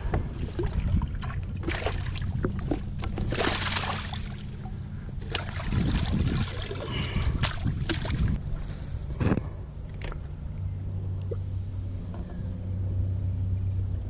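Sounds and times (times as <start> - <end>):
water splashing and trickling: 0.0 - 8.7.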